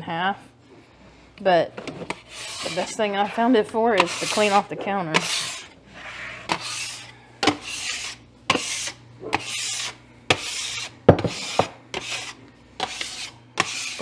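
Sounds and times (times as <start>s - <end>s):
bench scraper scraping countertop: 1.8s - 14.0s.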